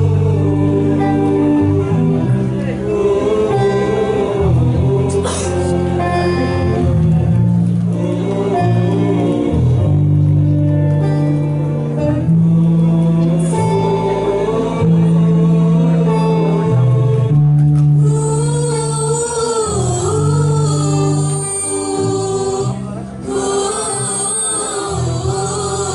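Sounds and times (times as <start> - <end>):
choir singing: 0.0 - 10.6, 11.2 - 25.9.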